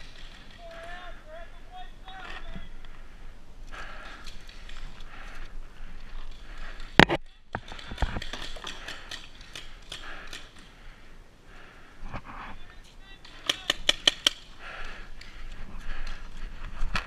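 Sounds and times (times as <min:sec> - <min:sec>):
paintball markers firing: 0:13.2 - 0:14.5.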